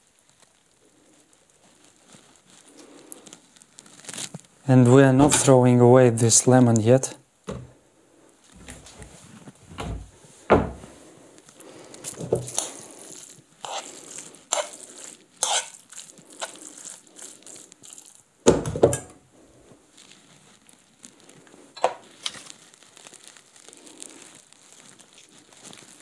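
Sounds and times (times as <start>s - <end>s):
spoon scraping frying pan: 12.1s - 18.1s.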